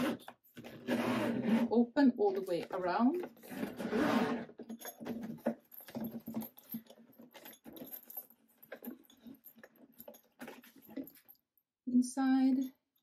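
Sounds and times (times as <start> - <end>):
suitcase zipper rasping: 0.0 - 5.4
suitcase being handled: 0.0 - 11.4.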